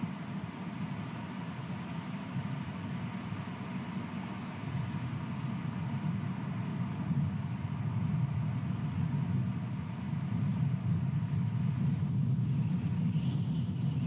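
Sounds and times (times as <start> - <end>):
wind buffeting microphone: 4.7 - 14.0.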